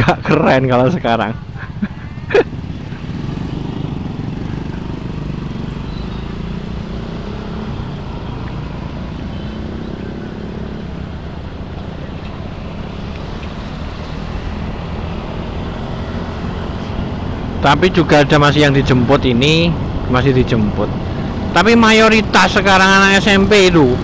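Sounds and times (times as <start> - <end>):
wind and road noise: 0.0 - 24.0
scooter engine running: 1.9 - 17.5.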